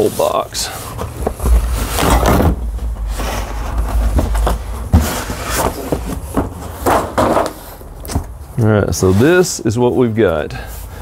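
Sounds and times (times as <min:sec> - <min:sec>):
cardboard scraping and rustling: 0:00.0 - 0:08.3.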